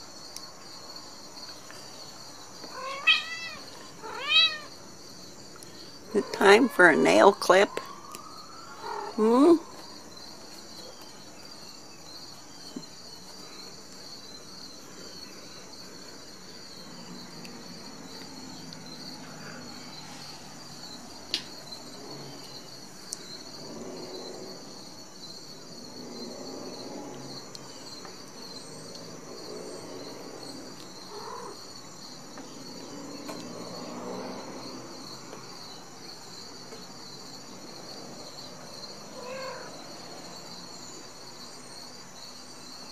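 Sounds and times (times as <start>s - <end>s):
kitten meowing: 2.8s - 4.7s.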